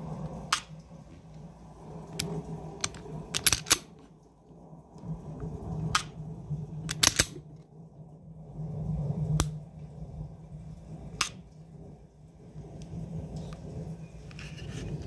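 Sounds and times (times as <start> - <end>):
pistol dry-fire clicks: 2.2 - 4.0, 6.9 - 7.4.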